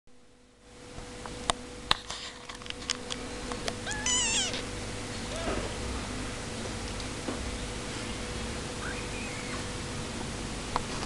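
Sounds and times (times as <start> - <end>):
kitten mewing: 3.8 - 4.7.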